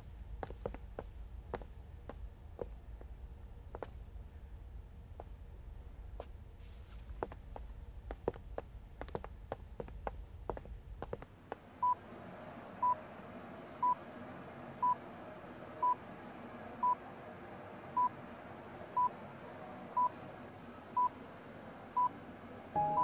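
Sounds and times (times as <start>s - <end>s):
patient monitor beeping: 22.8s - 23.0s.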